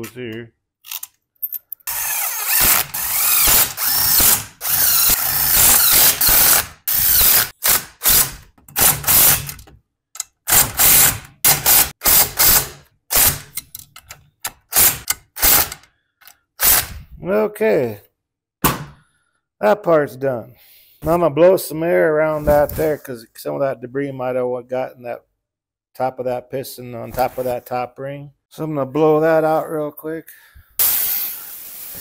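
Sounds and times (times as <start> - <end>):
cordless drill motor whining: 1.9 - 7.4.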